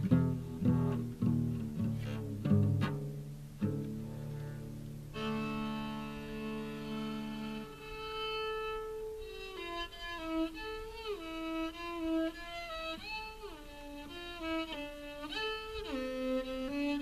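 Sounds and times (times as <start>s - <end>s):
bowed cello melody: 0.0s - 17.0s.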